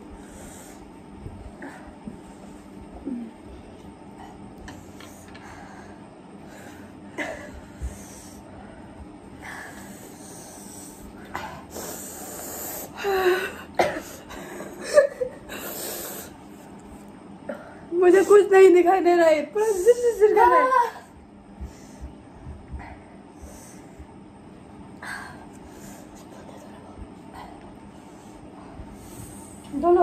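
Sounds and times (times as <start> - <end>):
hissing breaths and sniffs: 4.1 - 14.8, 15.5 - 17.2, 25.1 - 29.8
people gasping and coughing: 13.1 - 15.5.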